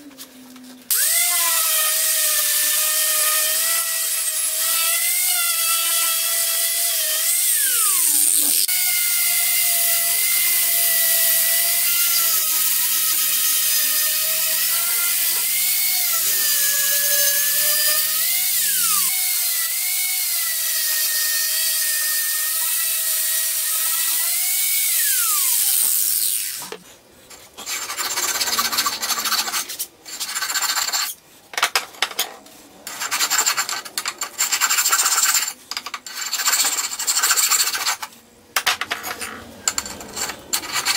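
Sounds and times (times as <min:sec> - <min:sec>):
angle grinder grinding steel: 0:00.9 - 0:26.8.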